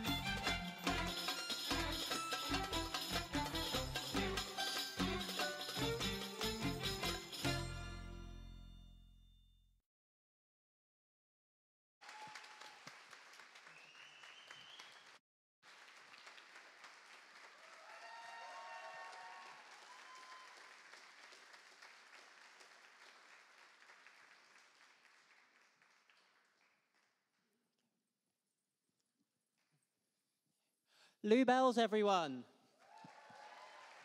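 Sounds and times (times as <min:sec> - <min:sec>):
audience applauding: 0:00.0 - 0:05.9, 0:12.0 - 0:27.1, 0:32.8 - 0:34.0
whoops and cheers: 0:12.0 - 0:12.9, 0:17.6 - 0:20.8, 0:32.8 - 0:34.0.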